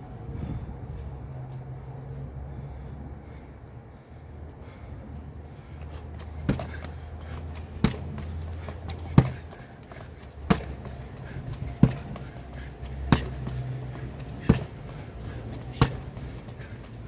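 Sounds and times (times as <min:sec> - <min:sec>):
punches thudding on heavy bag: 0:06.4 - 0:16.8.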